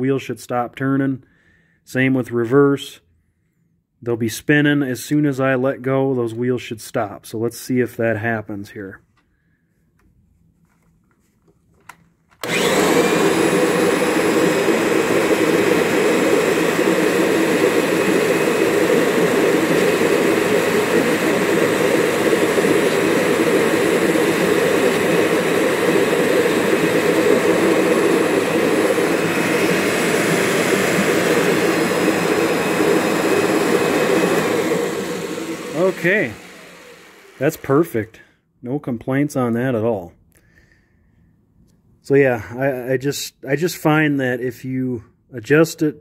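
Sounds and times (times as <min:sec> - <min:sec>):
higher whine: 0:12.4 - 0:38.0
vacuum cleaner motor whine: 0:12.4 - 0:38.1.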